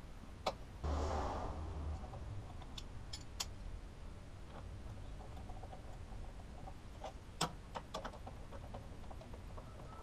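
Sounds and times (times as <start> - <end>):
low steady hum: 0.0 - 7.4.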